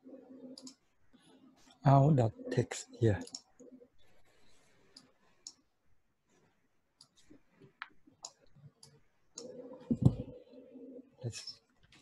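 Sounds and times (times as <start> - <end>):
computer mouse clicks: 0.5 - 0.9, 3.2 - 3.7, 4.9 - 5.6, 7.0 - 10.3.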